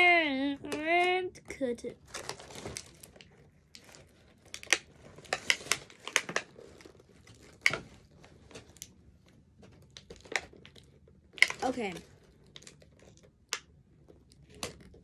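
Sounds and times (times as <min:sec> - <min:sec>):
plastic packaging crinkling: 0:02.0 - 0:09.0, 0:09.7 - 0:13.6
sharp crackles and clicks: 0:09.8 - 0:13.7.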